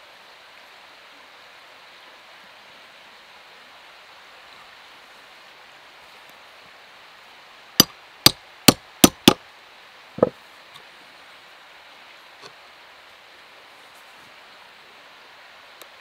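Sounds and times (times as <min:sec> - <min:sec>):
dull knock: 0:09.0 - 0:09.4.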